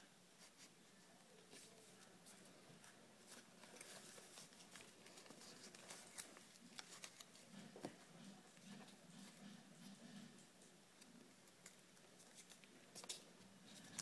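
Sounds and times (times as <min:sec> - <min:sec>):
paper rustling and crinkling: 0:01.4 - 0:09.4, 0:11.0 - 0:14.0.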